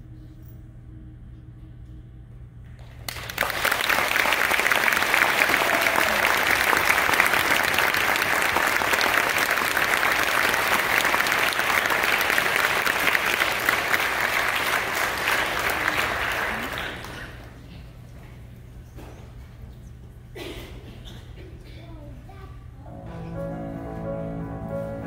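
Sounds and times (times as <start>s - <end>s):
audience applauding: 2.8s - 17.6s.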